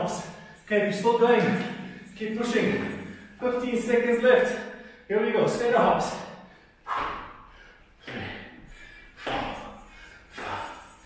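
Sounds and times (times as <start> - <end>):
feet thudding on rubber mat: 9.2 - 9.8.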